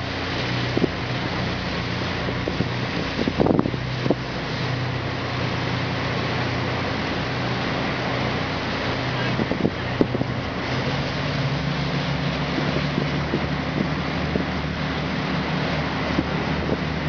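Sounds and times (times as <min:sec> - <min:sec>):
low engine drone: 0:00.0 - 0:17.0
wind buffeting microphone: 0:00.0 - 0:17.0.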